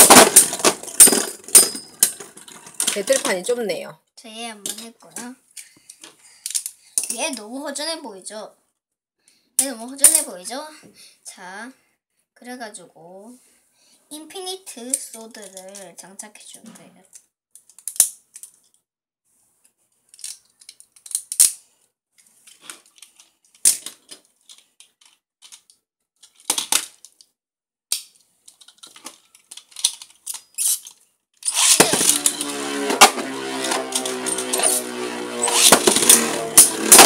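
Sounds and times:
spinning tops scraping whir: 31.4 - 37.0.

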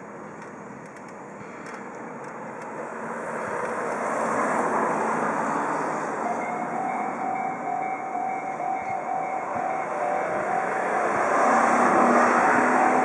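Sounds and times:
car passing close: 2.7 - 13.0
level crossing warning bell: 5.4 - 13.0.

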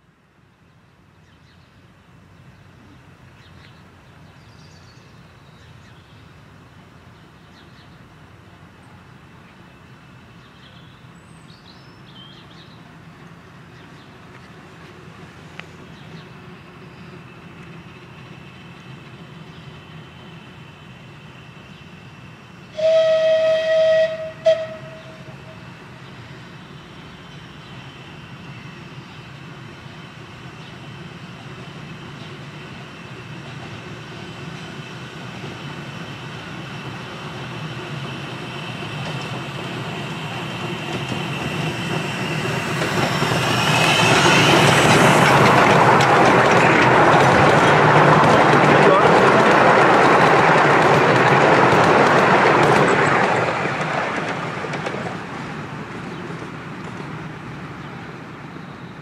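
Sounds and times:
train passing close by: 0.0 - 59.0
steam locomotive whistle: 22.7 - 25.6.

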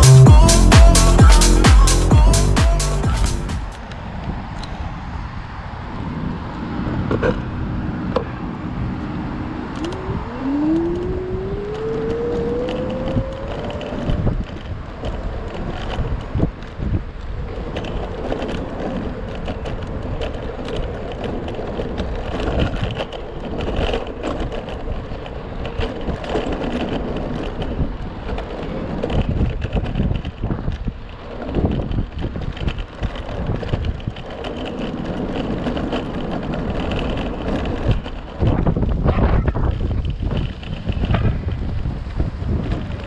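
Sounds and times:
road and wind noise: 3.0 - 43.0
electric scooter motor whine: 6.9 - 16.7.

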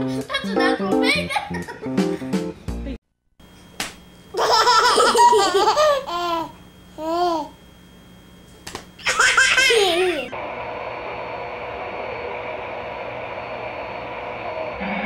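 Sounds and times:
toddlers laughing: 0.0 - 1.9, 4.4 - 7.5, 9.0 - 10.3.

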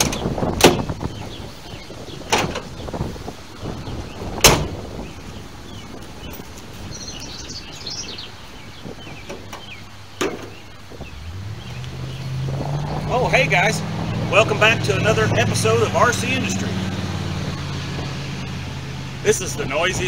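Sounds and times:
car door slamming: 0.0 - 1.1, 2.2 - 2.8, 4.4 - 4.9, 9.2 - 10.6
birds chirping: 0.0 - 20.0.

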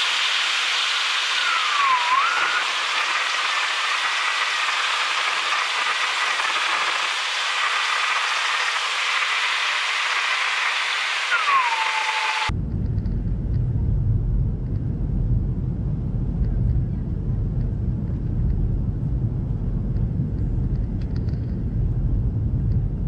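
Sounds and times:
cabin airflow and jet engine hiss: 0.0 - 23.0
short whistle: 1.3 - 2.7, 11.3 - 12.5.

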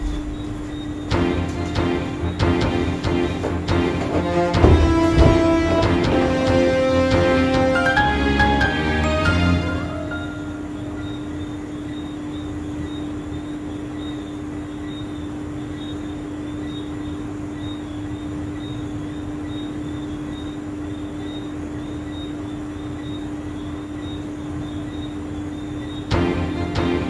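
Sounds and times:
faint wavering high whine: 0.0 - 1.7, 9.8 - 26.0
steady low hum: 0.0 - 7.4.

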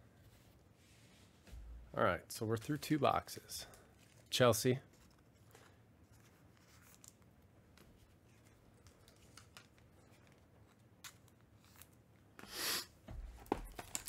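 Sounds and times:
faint rustles and clicks of handling: 0.0 - 14.0
cardboard and plastic packaging rustle: 13.1 - 14.0.

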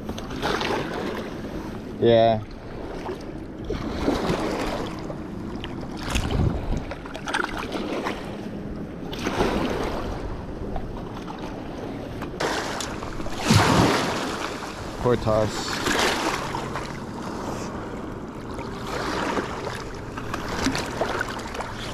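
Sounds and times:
small waves on rocky shore: 0.3 - 1.3, 2.1 - 8.3, 9.1 - 10.3, 11.3 - 21.9
wind on microphone: 6.0 - 7.0.

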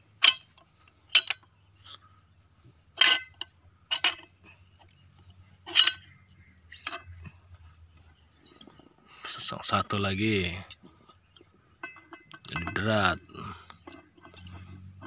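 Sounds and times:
sharp metallic clinks and taps: 0.2 - 1.5, 5.7 - 7.4, 10.2 - 15.0.

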